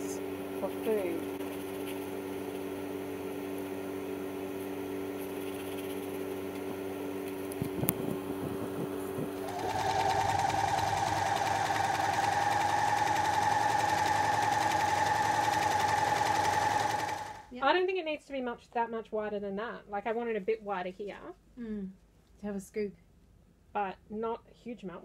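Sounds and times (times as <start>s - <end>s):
low steady hum: 0.0s - 12.1s
sewing machine stitching: 7.7s - 17.5s.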